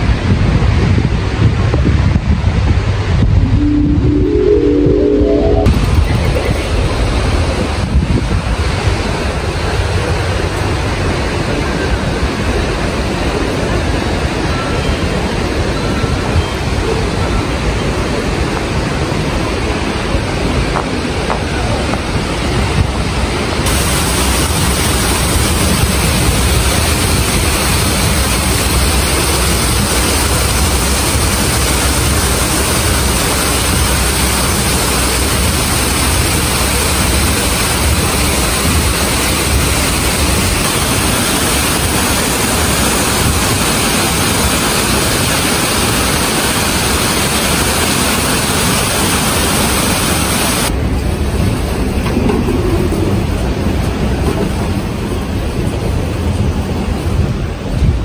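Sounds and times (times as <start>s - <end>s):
waterfall rushing: 3.5s - 5.9s, 19.0s - 50.7s
fountain jets splashing into pool: 23.6s - 50.7s.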